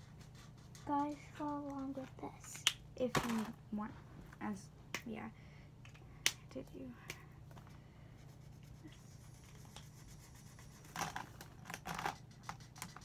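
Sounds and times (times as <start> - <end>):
marker scratching on paper: 0.0 - 2.1, 8.2 - 13.0
low steady hum: 0.0 - 13.0
plastic markers rummaged in a cup: 10.9 - 13.0.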